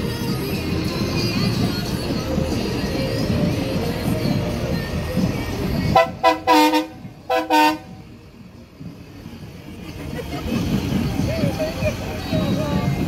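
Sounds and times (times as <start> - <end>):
vehicle horn honking: 5.9 - 8.0.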